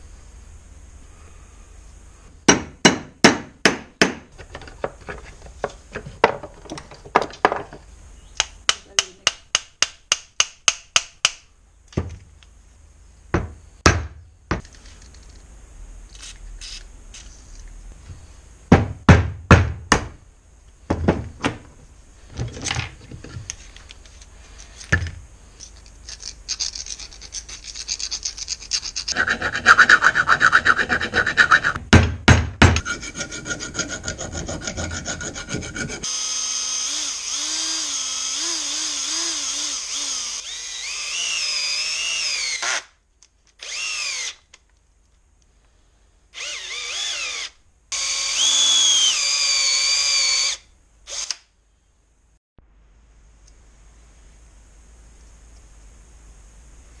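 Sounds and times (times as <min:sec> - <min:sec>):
hand scraping and rubbing: 0:23.2 - 0:31.8
cordless drill running: 0:36.0 - 0:42.9, 0:43.6 - 0:44.4, 0:46.4 - 0:51.4.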